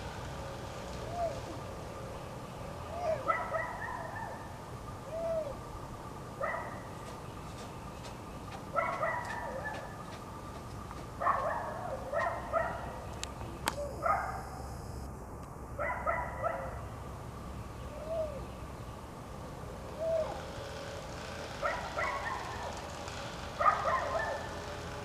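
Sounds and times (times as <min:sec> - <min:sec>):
bear cubs crying calls: 0:01.0 - 0:02.2, 0:02.8 - 0:07.0, 0:19.9 - 0:20.6.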